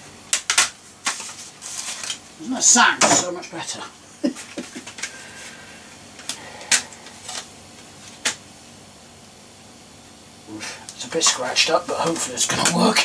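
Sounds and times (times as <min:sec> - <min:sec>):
computer hum: 0:03.5 - 0:13.0.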